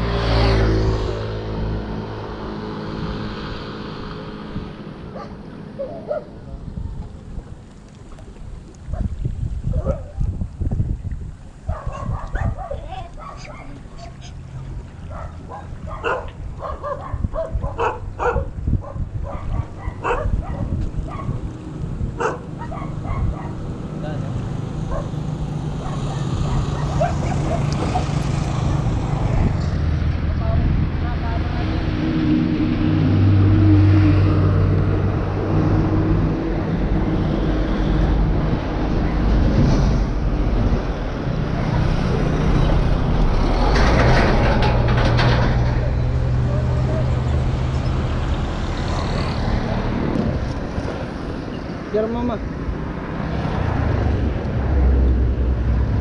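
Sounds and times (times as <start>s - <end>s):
highway traffic passing: 0.0s - 56.0s
dog barking and yipping: 5.1s - 6.3s, 9.7s - 10.2s, 11.7s - 14.4s, 15.1s - 21.4s, 22.2s - 23.6s, 24.9s - 25.2s, 25.8s - 28.2s
truck engine hum: 11.7s - 56.0s.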